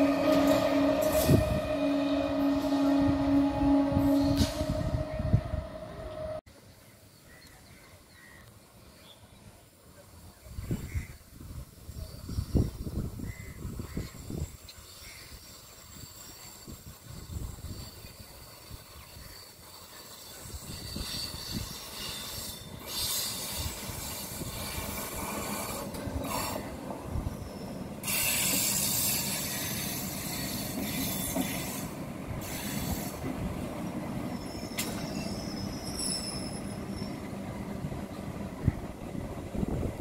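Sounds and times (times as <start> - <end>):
high-pitched wheel squeals: 0.0 - 6.4, 34.3 - 37.3
train wheels rushing on rails: 13.7 - 40.0.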